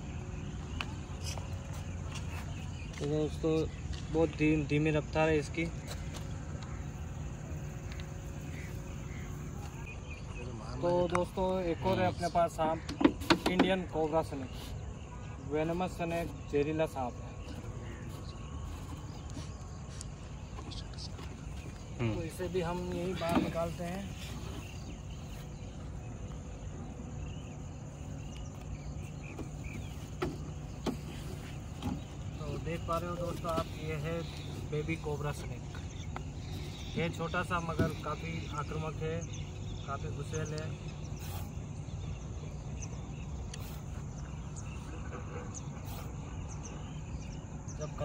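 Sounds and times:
short hissing noises: 41.1 - 41.8.

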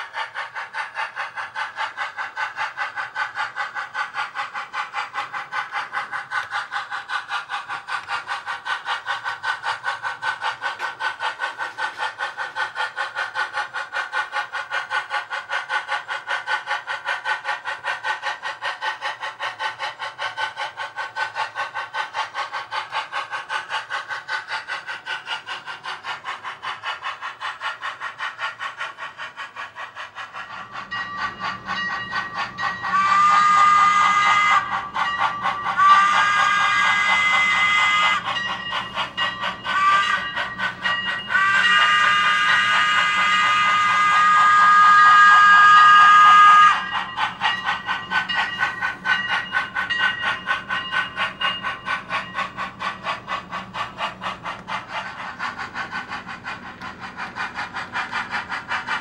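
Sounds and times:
model steam locomotive chuffing: 0.0 - 59.0
locomotive whistle: 30.6 - 52.4.

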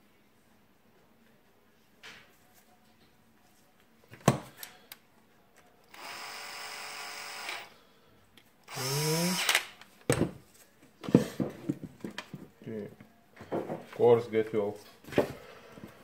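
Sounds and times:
cordless drill whirring: 5.9 - 7.7, 8.7 - 9.7
drill click: 5.9 - 7.7, 8.7 - 9.7.

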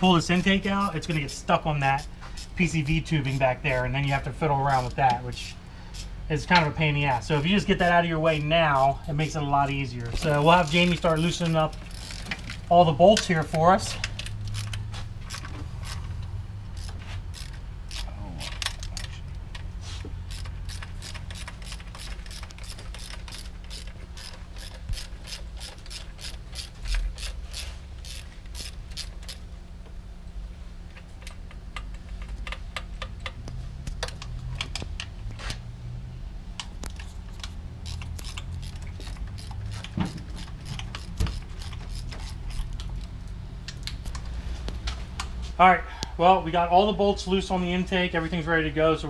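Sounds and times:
hand ratchet clicking: 0.1 - 6.7, 10.0 - 29.5, 36.6 - 43.1.

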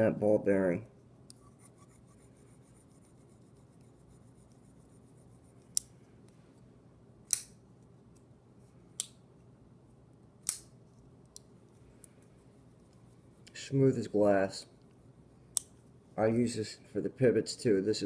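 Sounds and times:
folding knife blade snapping open: 10.4 - 10.7.

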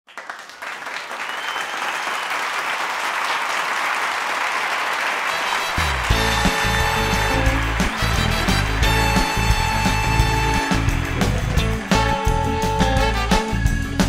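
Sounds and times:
audience applauding: 0.0 - 13.8
music with bass line: 5.8 - 14.0.

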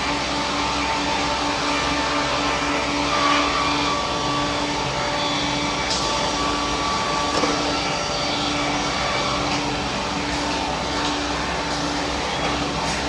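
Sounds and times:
sawmill circular saw cutting log: 0.0 - 13.0
steady machine hum: 0.0 - 13.0.

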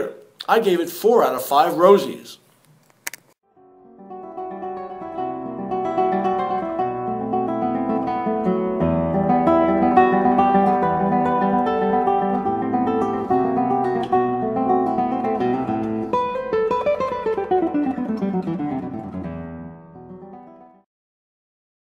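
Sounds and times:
acoustic guitar plucked notes: 3.5 - 20.8.

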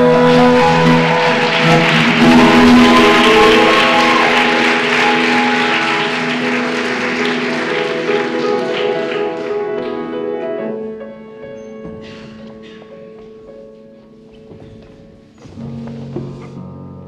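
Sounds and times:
audience applause: 0.0 - 10.2
music of sustained chords: 0.0 - 12.0.

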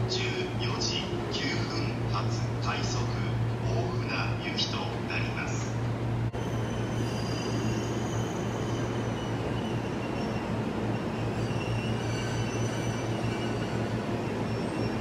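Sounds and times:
train rolling rumble: 0.0 - 15.0
wheel and brake squeals: 6.4 - 15.0.

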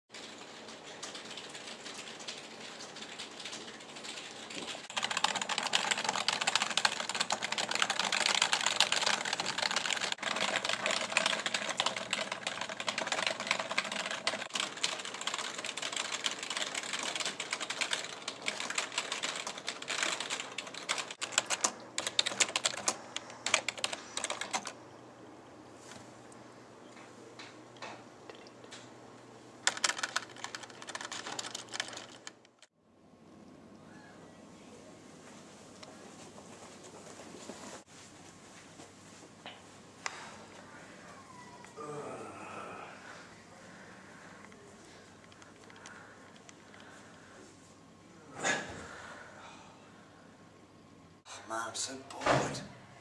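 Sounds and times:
faint steady background noise: 0.1 - 53.0
rapid dense clicking: 0.2 - 24.8, 29.6 - 32.7.

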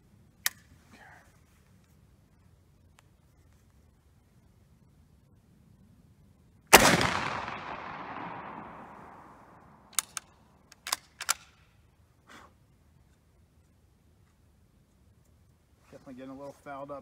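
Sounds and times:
rifle bolt metallic clicks: 0.4 - 0.7, 6.9 - 11.7
rifle shot with echo: 6.7 - 10.2.

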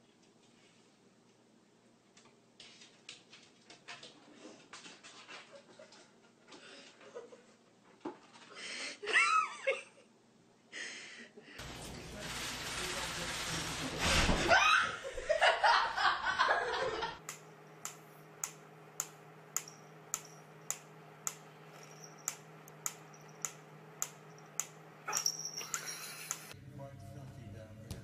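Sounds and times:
person laughing: 9.0 - 10.1, 14.6 - 17.2, 25.6 - 26.5
steady low hum: 16.0 - 28.0
sharp repeating clicks: 17.2 - 21.5.

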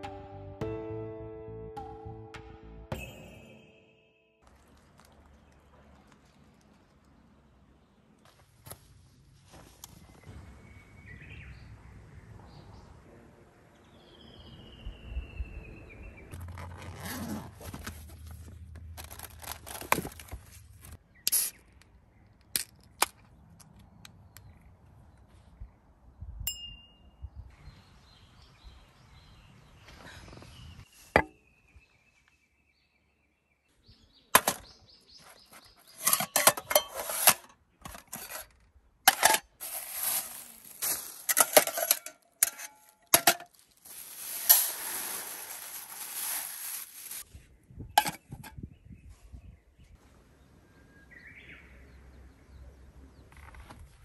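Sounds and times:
clattering and rustling: 35.3 - 47.2.

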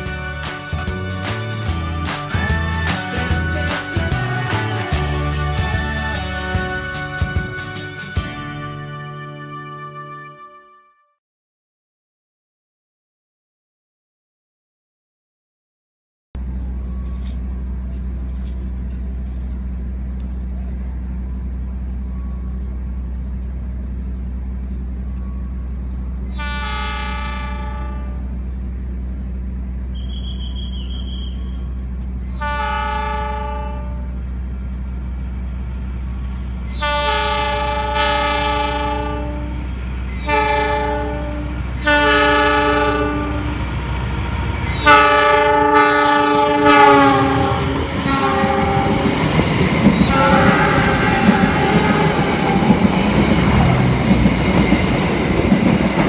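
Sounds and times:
train wheels rumbling past: 0.0 - 8.5, 16.4 - 56.0
locomotive air horn blasts: 0.0 - 11.1, 26.3 - 28.4, 30.0 - 31.6, 32.3 - 34.3, 36.7 - 43.8, 44.6 - 49.2, 50.0 - 52.7
low engine drone: 16.4 - 56.0.

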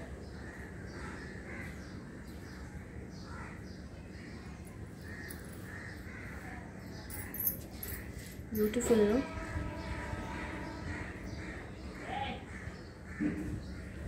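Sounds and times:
low steady hum: 0.0 - 14.0
crows cawing faintly: 0.3 - 2.4, 5.0 - 8.3, 9.6 - 14.0.

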